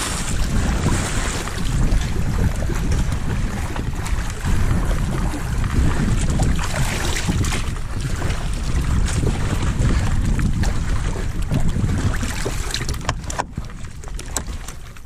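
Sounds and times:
water sloshing against hull: 0:00.0 - 0:15.0
wind buffeting microphone: 0:00.0 - 0:15.0.

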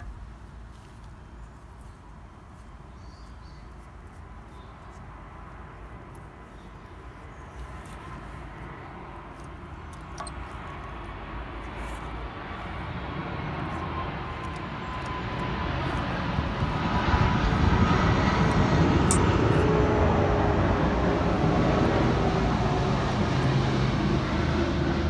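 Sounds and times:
distant engine rushing: 0:12.1 - 0:25.0.

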